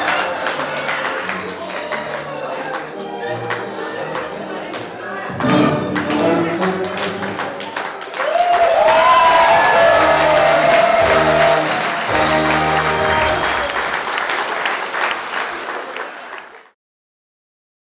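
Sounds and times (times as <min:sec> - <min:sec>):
audience applauding: 0:06.0 - 0:16.8
closing chords of music: 0:10.0 - 0:13.8.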